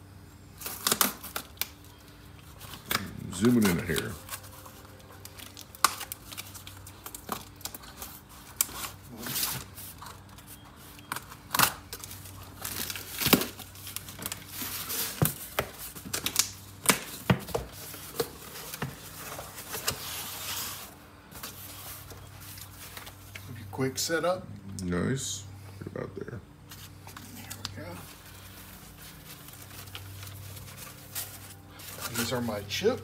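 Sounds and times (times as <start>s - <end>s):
packing tape tearing: 0.6s - 23.4s
cardboard scraping and rustling: 17.3s - 23.3s.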